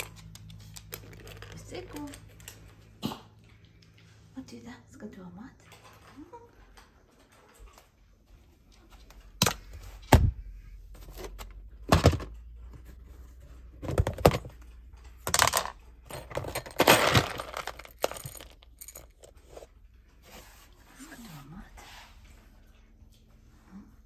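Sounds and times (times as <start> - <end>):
dry kibble rattling: 0.0 - 2.8, 15.2 - 19.7.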